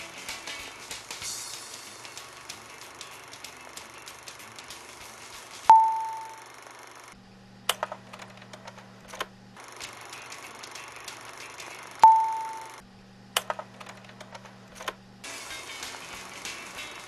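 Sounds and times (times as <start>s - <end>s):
crackly hiss with clicks: 0.4s - 5.6s
chime ding: 5.7s - 6.4s, 12.0s - 12.8s
low hum: 5.7s - 9.8s, 12.0s - 15.3s.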